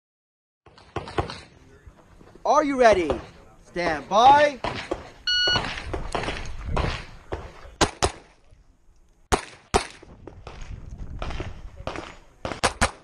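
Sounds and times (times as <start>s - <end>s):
pistol shots: 4.6s - 8.4s, 9.3s - 10.6s, 11.2s - 13.0s
shot timer beep: 5.3s - 5.7s.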